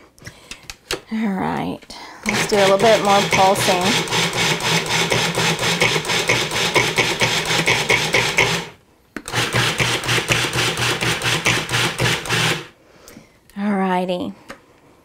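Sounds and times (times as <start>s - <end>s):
food processor motor churning: 2.3s - 12.7s
food processor click: 9.4s - 12.7s.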